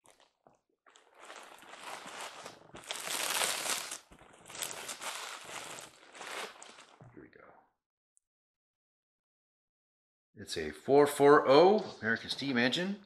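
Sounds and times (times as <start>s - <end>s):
bubble wrap crinkling: 0.0s - 7.0s.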